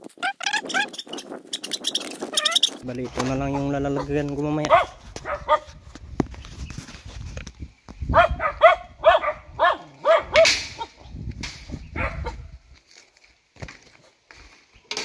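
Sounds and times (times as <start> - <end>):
dog barking in high yaps: 4.7 - 5.7, 8.1 - 11.0, 11.9 - 12.4.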